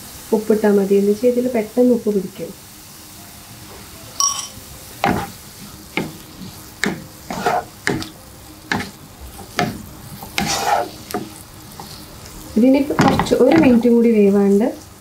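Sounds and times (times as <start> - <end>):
low steady sizzle: 0.0 - 15.0
ringing clink: 4.2 - 4.6
wooden spatula scraping pan: 5.0 - 14.0.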